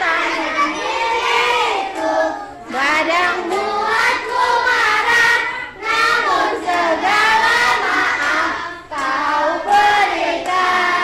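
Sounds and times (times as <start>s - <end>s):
children singing together: 0.0s - 11.0s.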